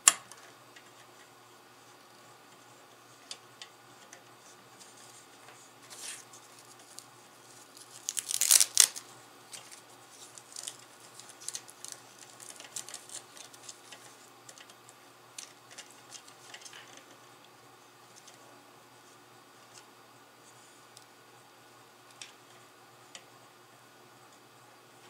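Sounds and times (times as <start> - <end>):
loud rustling tear: 5.9 - 14.0.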